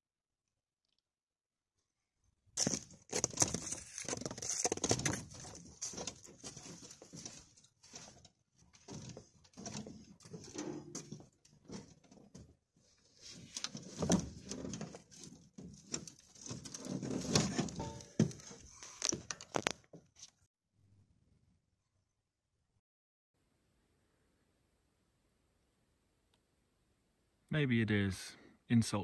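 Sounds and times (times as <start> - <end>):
footsteps and scuffing on trail: 2.6 - 11.3.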